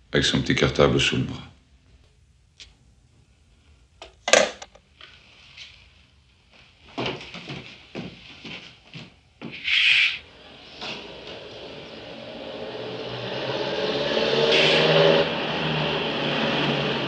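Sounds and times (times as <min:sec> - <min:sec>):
car engine approaching: 0:10.3 - 0:17.0
short loud burst of noise: 0:14.4 - 0:15.0.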